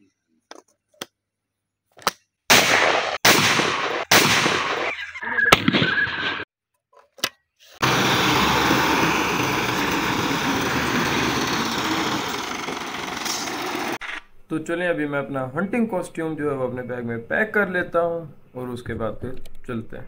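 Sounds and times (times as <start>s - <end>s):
loud shotgun shots: 2.5s - 6.4s
tractor engine running: 7.8s - 14.0s.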